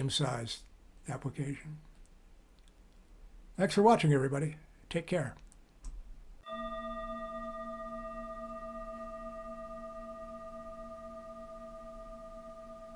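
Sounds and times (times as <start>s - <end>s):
bell-like chime ringing: 6.4s - 12.9s.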